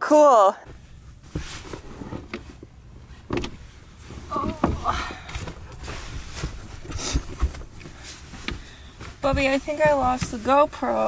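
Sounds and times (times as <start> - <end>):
sleeping bag rustling: 0.6 - 11.0
knocks of things being moved: 0.7 - 11.0.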